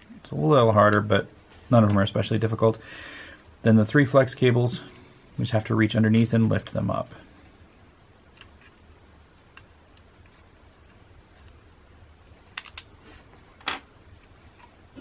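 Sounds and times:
small clicks on plastic parts: 0:12.5 - 0:12.9.

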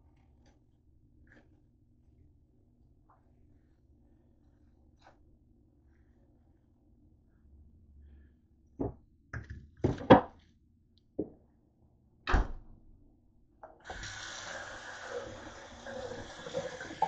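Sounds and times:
tap water running into sink: 0:13.8 - 0:17.0.

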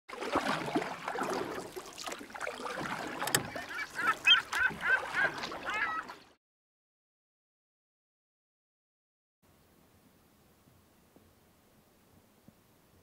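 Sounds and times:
geese honking: 0:03.4 - 0:06.1.

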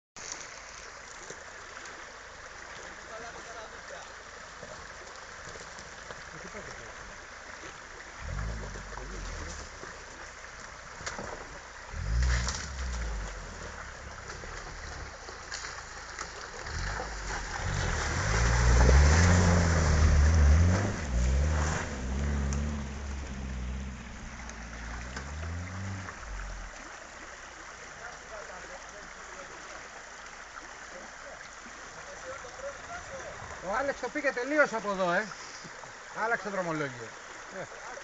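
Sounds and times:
stream running: 0:00.2 - 0:38.0
water and gravel under tyres: 0:00.2 - 0:38.0
car engine revving: 0:08.2 - 0:09.8, 0:11.9 - 0:15.2, 0:16.6 - 0:26.8.

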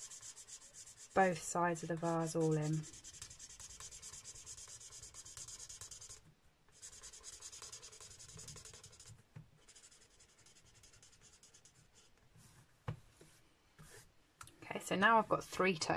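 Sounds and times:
marker scratching on cardstock: 0:00.0 - 0:12.1.

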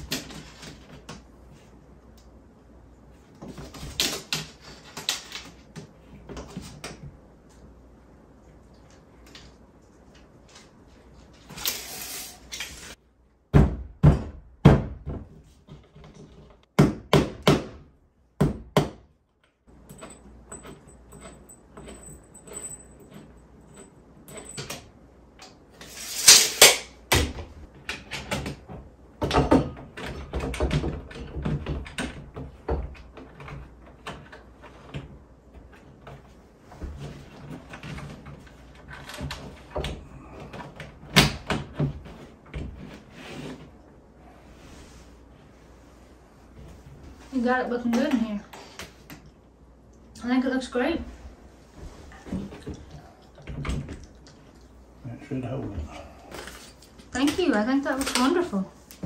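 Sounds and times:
sharp knocks and thuds: 0:13.5 - 0:15.4.

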